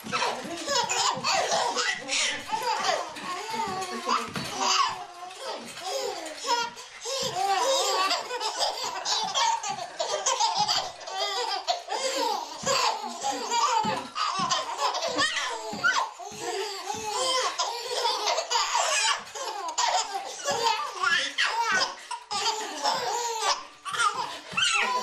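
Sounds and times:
babies laughing and squealing: 0:00.0 - 0:25.0
feet thumping on wooden floor: 0:06.5 - 0:20.8.

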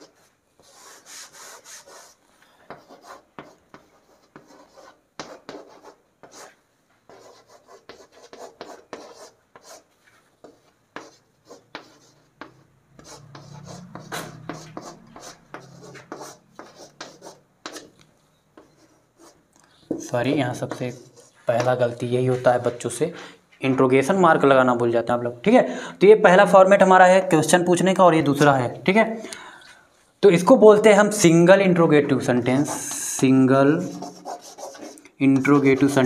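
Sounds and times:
scratchy writing on a board: 0:00.0 - 0:22.7, 0:32.6 - 0:36.0.

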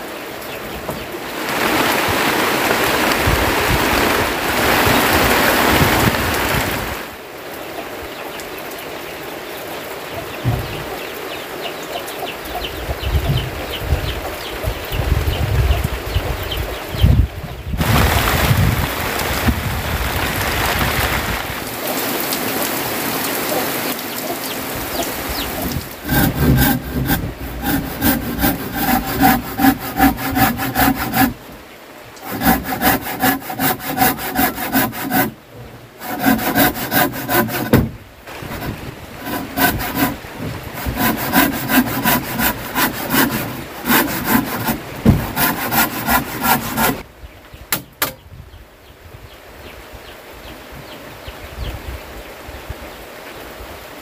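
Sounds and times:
heavy rain: 0:01.0 - 0:10.5, 0:17.8 - 0:45.9
hand saw cutting wood: 0:25.6 - 0:31.4, 0:32.2 - 0:35.4, 0:36.0 - 0:47.0.

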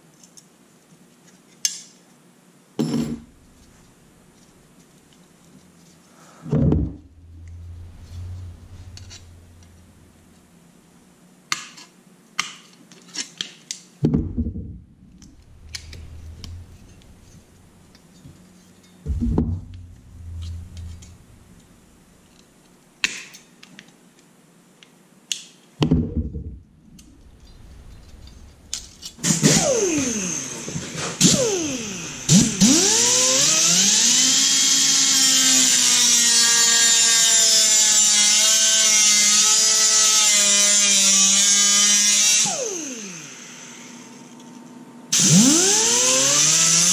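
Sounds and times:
die grinder whining: 0:27.2 - 0:36.4, 0:45.2 - 0:46.9.

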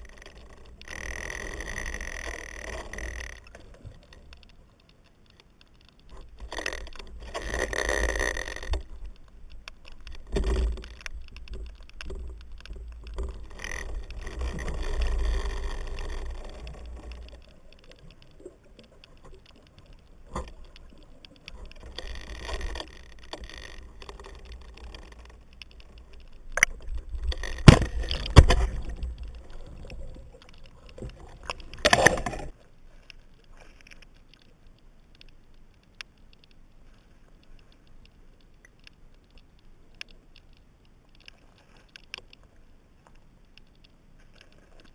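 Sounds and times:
swishing water: 0:00.0 - 0:34.5
underwater water rumble: 0:00.0 - 0:35.9
sharp knocks underwater: 0:26.6 - 0:29.2.

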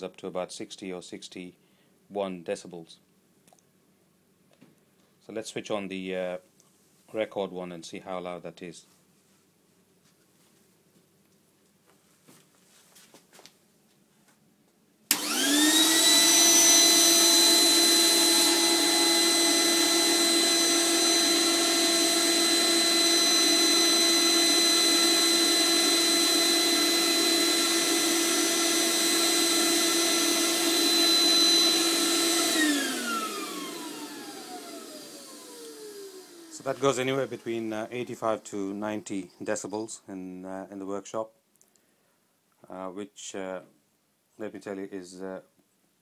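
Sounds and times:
dust extractor whine: 0:15.1 - 0:39.2.

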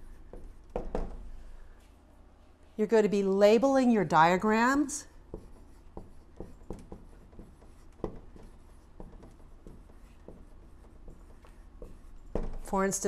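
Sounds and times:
marker writing on whiteboard: 0:00.0 - 0:01.5, 0:04.9 - 0:13.0.

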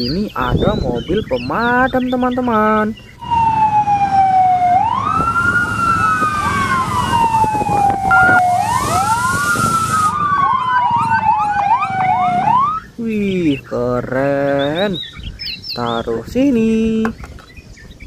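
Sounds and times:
siren with fast rising sweeps: 0:03.2 - 0:12.9
fire truck siren wailing: 0:03.2 - 0:13.0.

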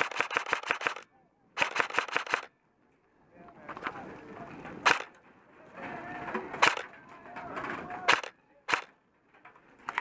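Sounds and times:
airsoft gun shots: 0:00.0 - 0:02.5, 0:04.8 - 0:05.2, 0:06.6 - 0:06.9, 0:08.0 - 0:08.9.

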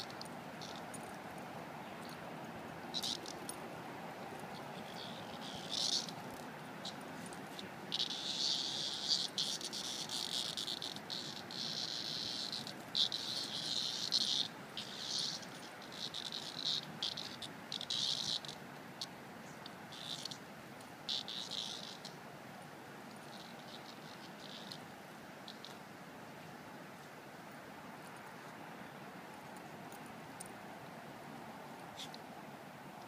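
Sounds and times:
cicada buzzing in bursts: 0:00.0 - 0:22.3, 0:23.1 - 0:26.0, 0:31.9 - 0:32.2.

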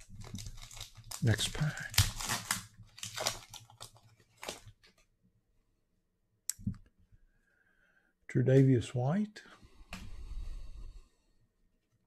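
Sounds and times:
wrapper tearing and crinkling: 0:00.0 - 0:05.0.

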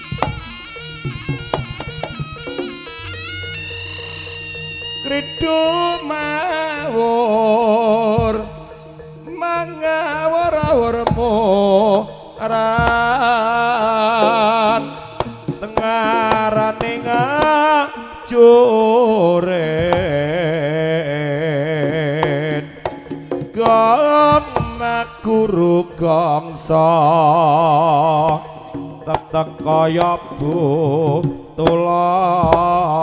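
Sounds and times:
low ringing tone: 0:00.0 - 0:18.8
hand drum playing: 0:00.0 - 0:33.0
wavering vibrato melody: 0:00.0 - 0:33.0.

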